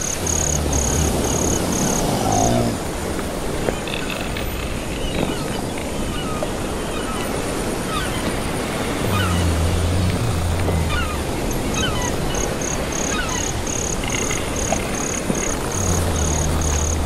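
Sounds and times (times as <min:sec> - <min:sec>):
low drawn-out hum: 0:00.0 - 0:03.6, 0:07.9 - 0:17.0
waves washing: 0:00.0 - 0:17.0
seagull cries: 0:06.1 - 0:09.7, 0:10.6 - 0:13.6.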